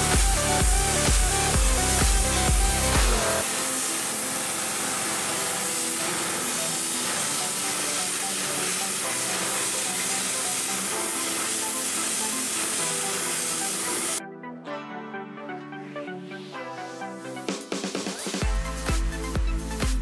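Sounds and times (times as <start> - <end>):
plasma torch hissing: 0.0 - 14.2
background music: 0.0 - 20.0.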